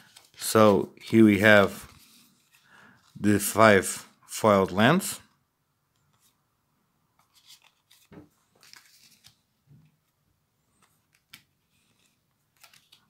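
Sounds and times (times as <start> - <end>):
trading cards being shuffled: 0.0 - 3.2, 7.2 - 9.4, 10.8 - 13.0
soft ticks of card edges: 10.7 - 13.0.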